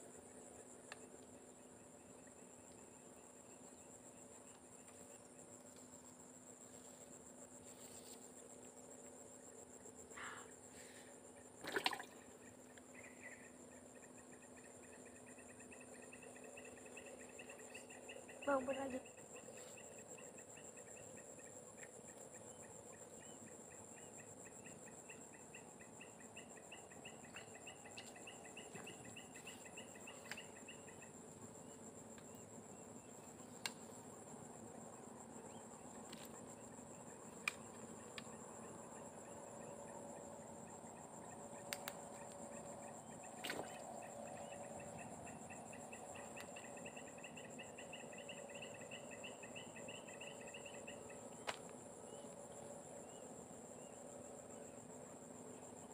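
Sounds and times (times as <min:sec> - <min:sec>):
insect fast-pulsing trill: 0:00.0 - 0:55.9
insects buzzing: 0:00.0 - 0:55.9
faint sharp clicks: 0:33.6 - 0:33.8, 0:37.4 - 0:38.3, 0:41.7 - 0:42.0.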